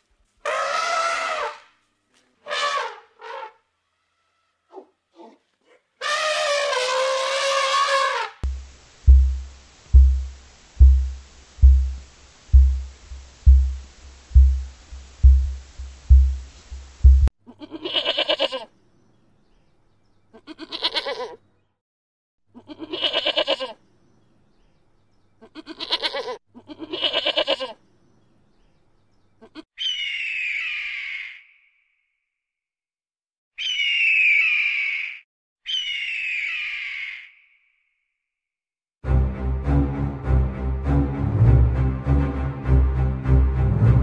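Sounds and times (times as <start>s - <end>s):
deep low thuds: 8.4s - 17.3s
goat bleating: 17.5s - 18.7s, 20.3s - 21.4s, 22.6s - 23.8s, 25.4s - 27.8s.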